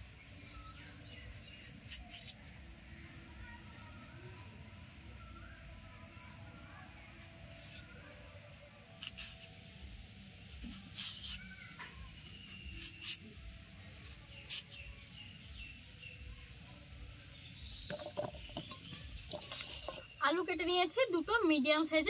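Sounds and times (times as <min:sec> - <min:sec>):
birds chirping: 0:17.3 - 0:20.9.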